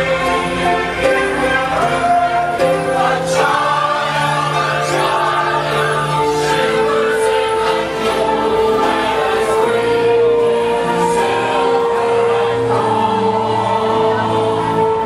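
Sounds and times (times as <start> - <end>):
choir singing a carol: 0.0 - 15.0
musical backing: 0.0 - 15.0.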